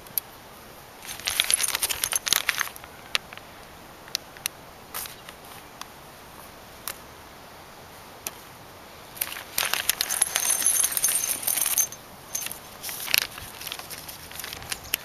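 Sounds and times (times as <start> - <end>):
metal bolts and washers clinking: 1.0 - 2.7, 9.2 - 14.8.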